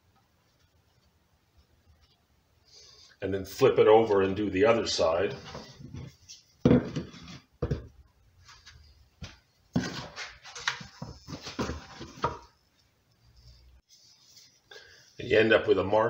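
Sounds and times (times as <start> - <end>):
scraping on wooden workbench: 5.3 - 7.8, 9.8 - 12.5
plastic bucket knocks and thumps: 6.6 - 8.0.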